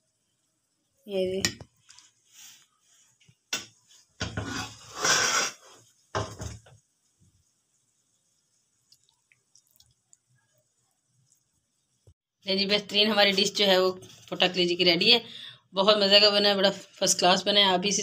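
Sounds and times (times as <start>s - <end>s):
utensils scraping a plate: 4.3s - 5.8s.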